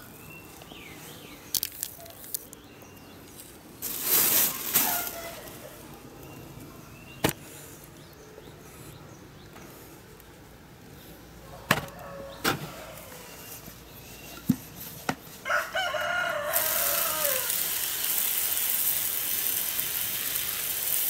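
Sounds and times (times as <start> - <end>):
pellets falling on soil: 3.4 - 5.5.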